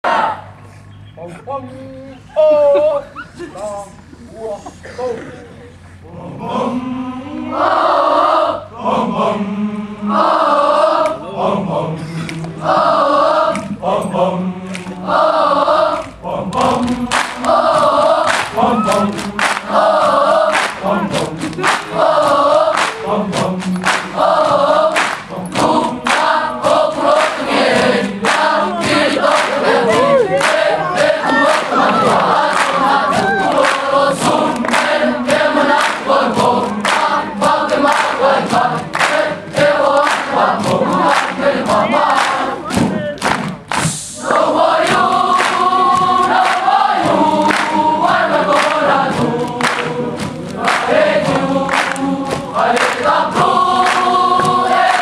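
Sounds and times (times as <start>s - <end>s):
boys chanting in unison: 6.0s - 43.2s, 43.9s - 55.0s
sharp rhythmic strikes: 12.5s - 55.0s.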